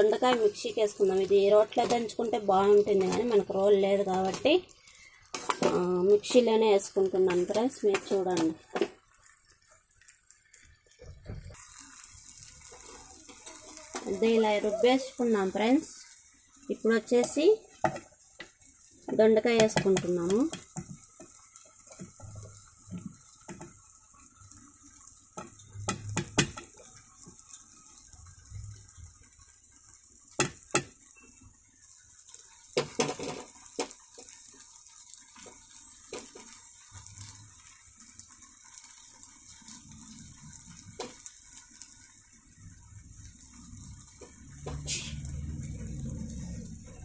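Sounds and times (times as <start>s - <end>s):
faint hiss: 36.1s - 46.3s.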